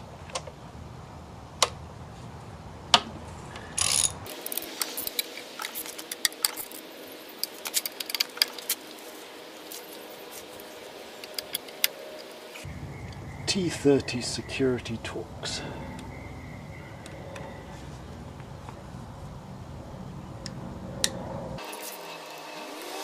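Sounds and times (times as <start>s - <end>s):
ratchet wrench clicking: 3.8s - 6.8s.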